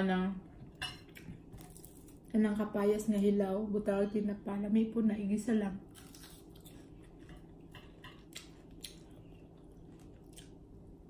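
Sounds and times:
low steady hum: 0.0 - 11.0
chewing and mouth smacks: 6.0 - 10.6.

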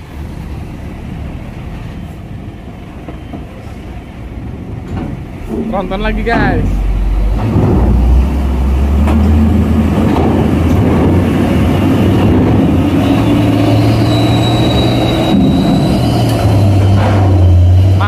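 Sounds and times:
truck diesel engine: 3.6 - 18.0
turbocharger whistle: 13.0 - 16.9.

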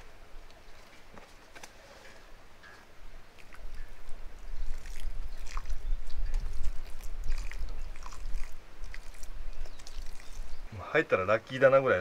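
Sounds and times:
small crackles of soaking soil: 0.0 - 12.0
water pouring onto soil: 3.4 - 10.7.

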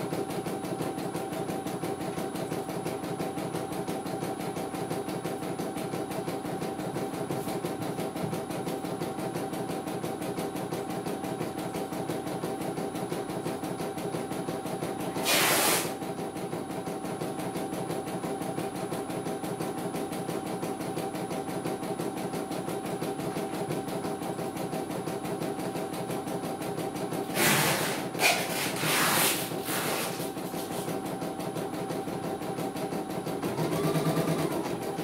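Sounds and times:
embroidery machine stitching: 7.9 - 35.0.

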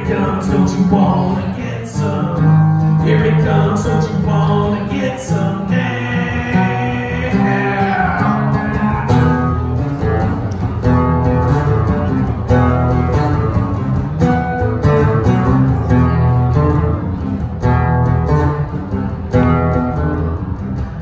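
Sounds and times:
man singing: 0.0 - 9.6
acoustic guitar strumming chords: 0.0 - 21.0.

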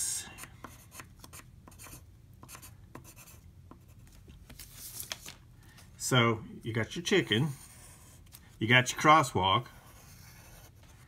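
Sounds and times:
pencil scratching on paper: 0.4 - 4.0, 7.2 - 8.3, 9.0 - 11.0.

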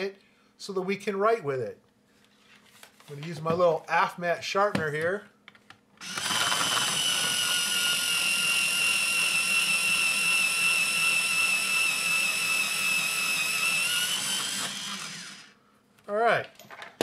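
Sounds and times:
electric pencil sharpener whine: 6.0 - 15.6.

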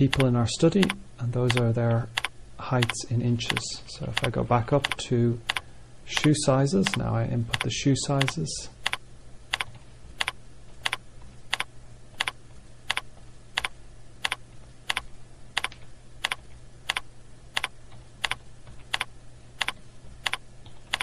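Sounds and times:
low steady hum: 0.0 - 21.0
keyboard keystrokes clicking: 0.1 - 3.6, 4.2 - 5.6, 6.8 - 13.0, 17.6 - 21.0.

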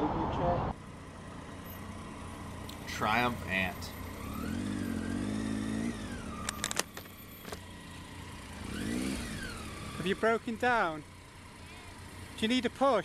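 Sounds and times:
motorcycle engine running: 0.8 - 13.0
sharp clicks: 6.4 - 7.7.

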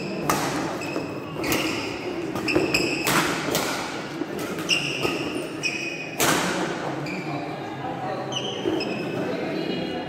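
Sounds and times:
shoes squeaking on court: 0.0 - 3.2, 4.4 - 6.2, 8.3 - 9.3
rackets hitting shuttlecock: 0.0 - 6.8
crowd chatter in echoing hall: 0.0 - 10.0.

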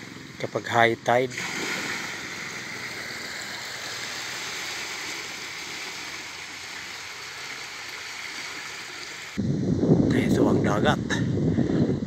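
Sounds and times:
seawater rushing through canal: 0.0 - 9.4.

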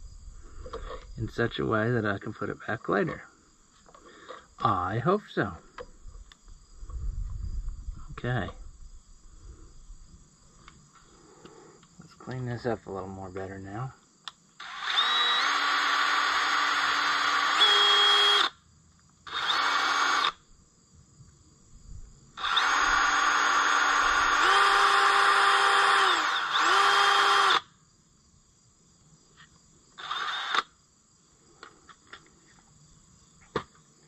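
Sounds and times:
electric power tool running: 14.6 - 18.5, 19.3 - 20.4, 22.4 - 27.6, 30.0 - 30.7.

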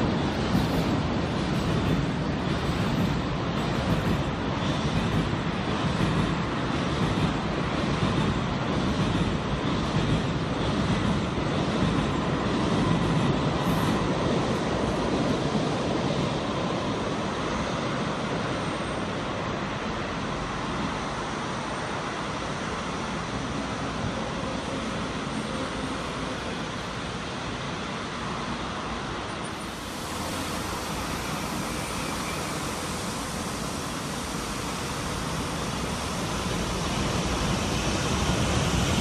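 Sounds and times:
train rumbling over steel bridge: 0.0 - 39.0.

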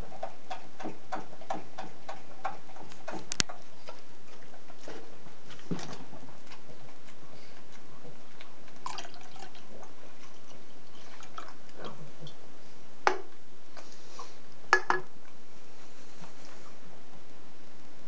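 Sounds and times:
soda pouring into a glass: 8.8 - 9.7.

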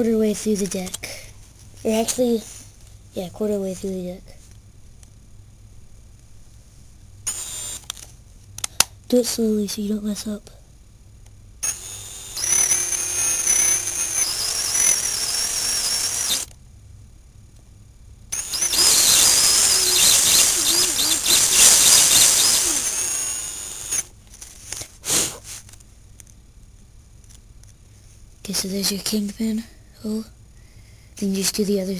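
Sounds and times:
drill boring into wood: 7.3 - 7.8, 11.6 - 16.5, 18.4 - 24.1.

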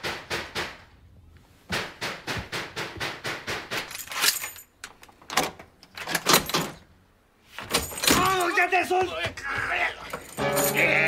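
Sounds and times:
door lock and chain jangling: 3.8 - 6.8, 7.6 - 8.6, 10.0 - 11.0.

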